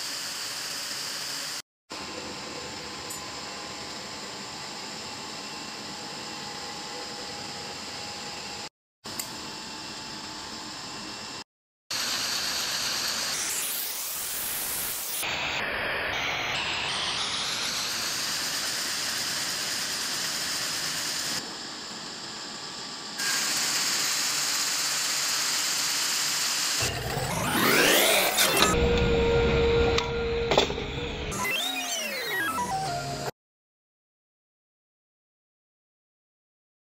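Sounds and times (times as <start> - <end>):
textile machinery running: 23.2 - 32.3.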